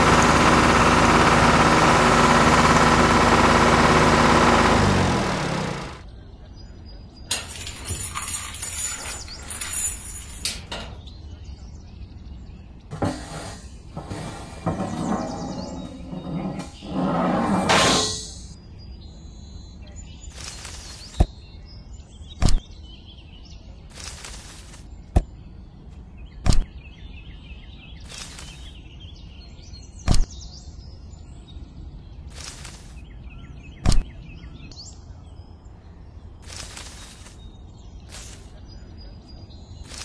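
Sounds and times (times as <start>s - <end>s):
faint bird chirps: 18.6s - 40.0s
rustling: 32.3s - 33.0s, 36.4s - 37.4s.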